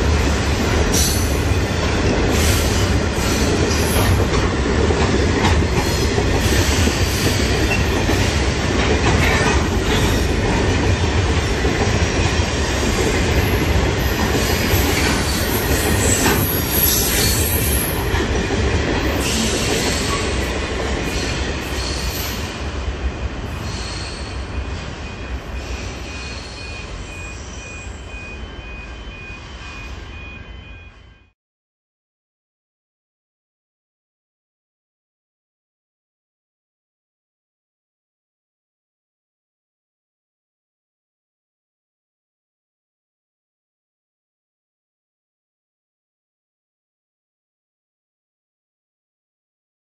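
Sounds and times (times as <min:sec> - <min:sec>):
freight train wagons rumbling: 0:00.0 - 0:30.6.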